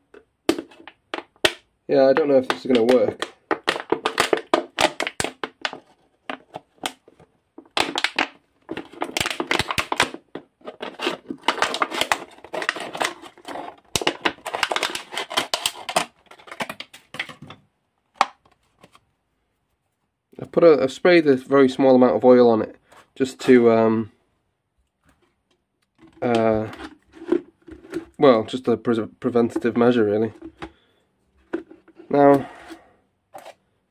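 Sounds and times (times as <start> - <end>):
plastic bottle crinkling: 0.0 - 17.6, 25.0 - 33.6.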